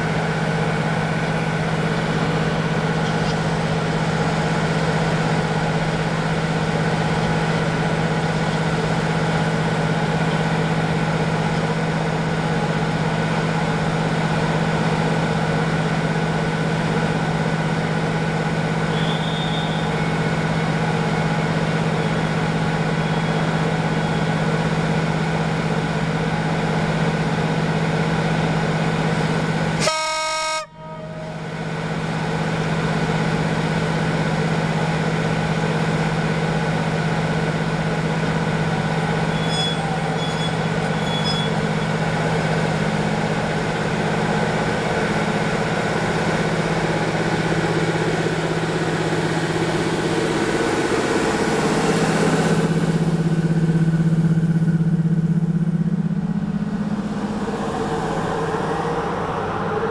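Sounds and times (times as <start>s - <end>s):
electric locomotive humming: 0.0s - 59.9s
locomotive horn toot: 18.9s - 19.9s, 29.8s - 31.5s, 39.3s - 41.6s.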